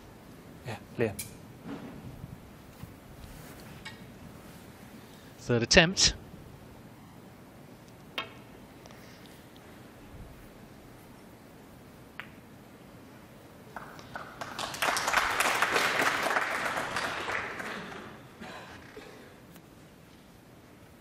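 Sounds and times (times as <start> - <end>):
snooker balls clicking: 12.1 - 12.5
audience applauding: 13.7 - 18.9.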